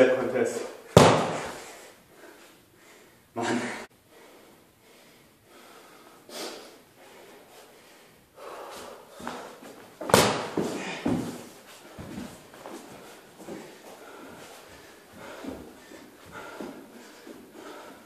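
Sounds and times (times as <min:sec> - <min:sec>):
short thumps: 0:01.0 - 0:01.6
soft breaths: 0:01.5 - 0:09.9, 0:10.5 - 0:18.0.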